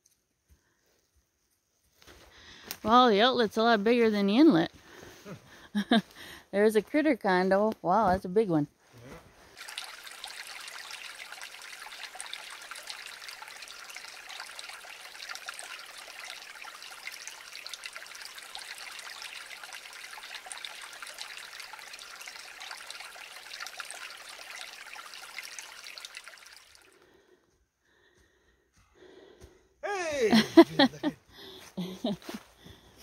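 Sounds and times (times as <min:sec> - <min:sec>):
creek trickling over stones: 0:02.0 - 0:08.3, 0:09.4 - 0:27.1, 0:30.3 - 0:31.0.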